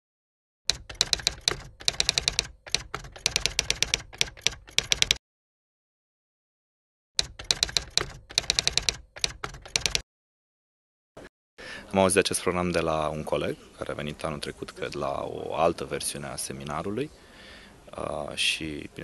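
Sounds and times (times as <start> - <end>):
typewriter keystrokes clattering: 0.7 - 5.2, 7.2 - 10.0.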